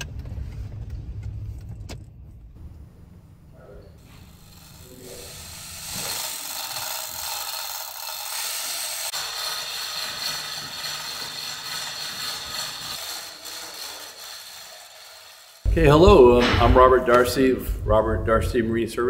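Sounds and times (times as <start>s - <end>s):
power tool cutting wood: 4.0s - 15.7s.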